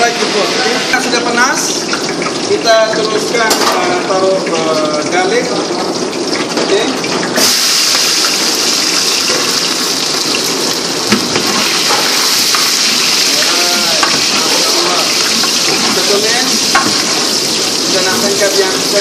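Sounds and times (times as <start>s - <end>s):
garlic sizzling in hot oil: 0.0s - 19.0s
ladle stirring in pot: 10.5s - 18.6s.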